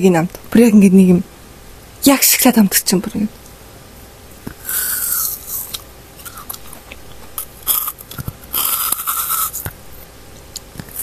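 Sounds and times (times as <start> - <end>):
chewing and crunching ice cream: 4.6 - 9.8.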